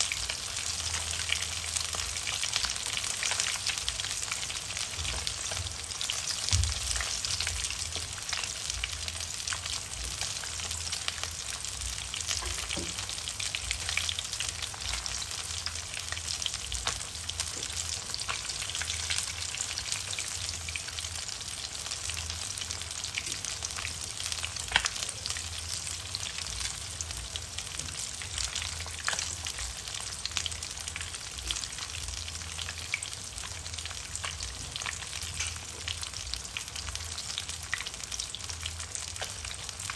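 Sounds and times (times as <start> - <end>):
oil sizzling in a pan: 0.0 - 39.9
small oil pops and crackles: 35.3 - 35.6.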